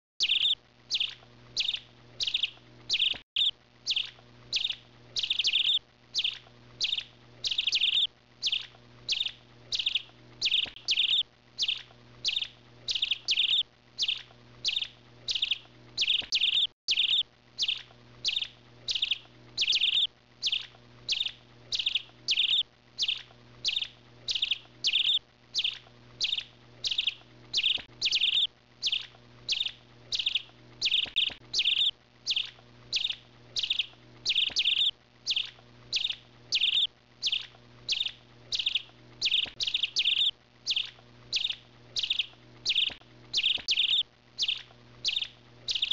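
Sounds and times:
bird chirping: 0.2 - 45.9
faint steady hum: 0.2 - 45.9.

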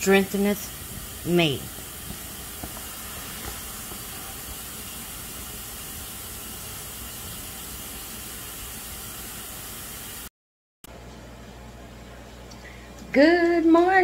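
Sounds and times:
high-pitched background hiss: 0.0 - 10.3.

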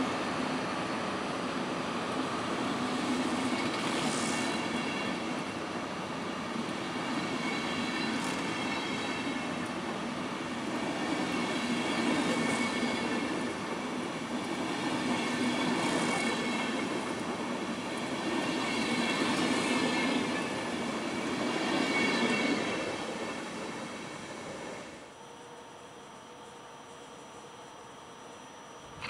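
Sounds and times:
train wheels rumbling on rails: 0.0 - 25.1
hiss: 2.8 - 5.6
high wheel squeal: 6.8 - 9.7, 10.9 - 13.4, 18.3 - 23.4.

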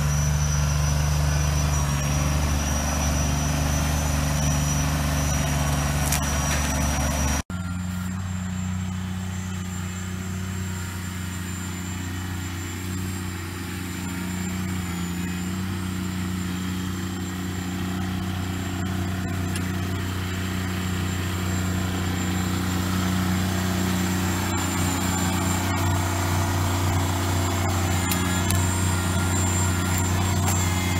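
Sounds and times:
tractor diesel engine running: 0.0 - 30.9.

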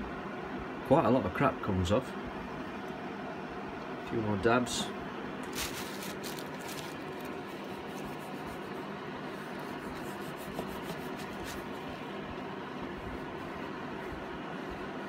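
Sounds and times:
electric fan heater running: 0.0 - 15.0
foam applicator rubbing plastic: 5.5 - 11.9.

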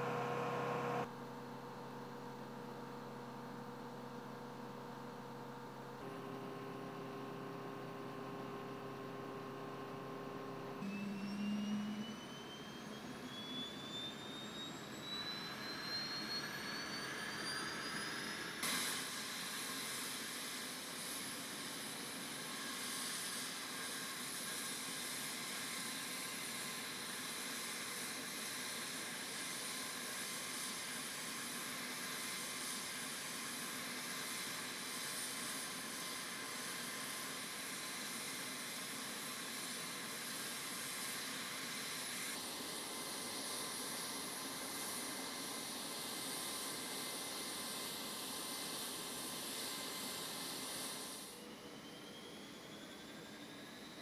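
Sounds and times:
turboprop engine starting: 0.0 - 1.1, 6.0 - 23.8.

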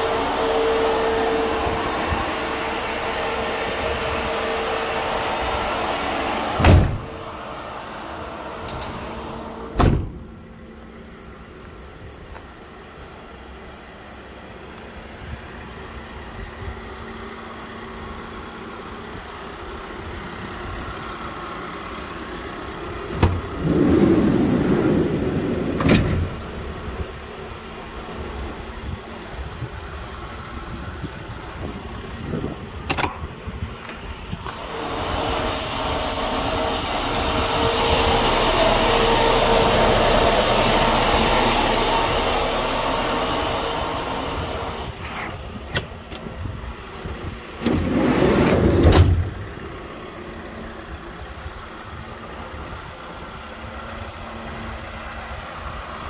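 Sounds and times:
refrigeration fan blowing: 0.0 - 9.9, 22.2 - 56.0
engine idling hum: 0.0 - 56.0
clunk and rumble: 23.1 - 26.9, 47.6 - 49.5
metal door latch clicks: 32.9 - 33.3.

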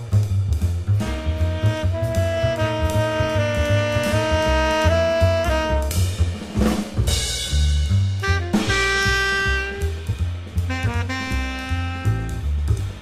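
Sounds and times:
drum kit: 0.0 - 13.0
low bass line: 0.0 - 13.0
saxophone playing: 1.0 - 6.1, 8.2 - 13.0.

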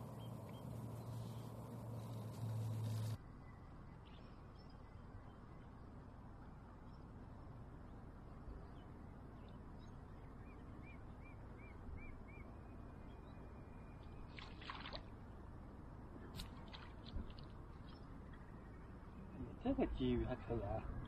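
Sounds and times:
wind: 0.0 - 21.0
flowing shallow water: 14.2 - 15.5, 16.3 - 18.6.

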